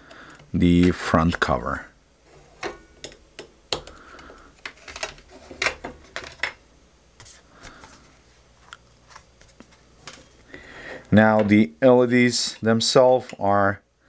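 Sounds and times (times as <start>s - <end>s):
screwdriver clicks and taps: 3.0s - 4.0s.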